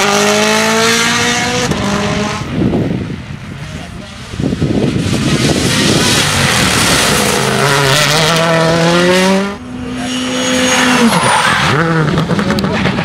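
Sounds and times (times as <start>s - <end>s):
rally car engine at full throttle: 0.0s - 13.0s.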